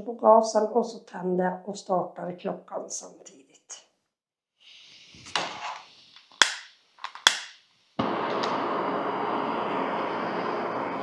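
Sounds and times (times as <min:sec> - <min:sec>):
gas hissing from valve: 0:04.7 - 0:11.0
lighter clicks: 0:06.2 - 0:07.6
stove burner rushing: 0:07.2 - 0:11.0.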